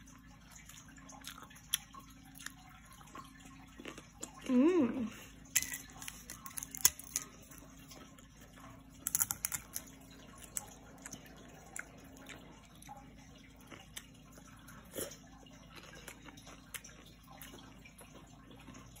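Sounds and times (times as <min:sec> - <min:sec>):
crisp crackers crunching: 0:05.5 - 0:08.0, 0:09.0 - 0:12.9.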